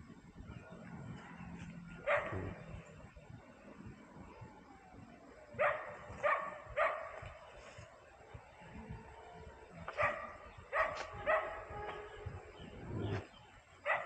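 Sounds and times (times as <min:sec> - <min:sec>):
dog barking: 0:02.0 - 0:02.6, 0:05.6 - 0:07.2, 0:09.9 - 0:11.8.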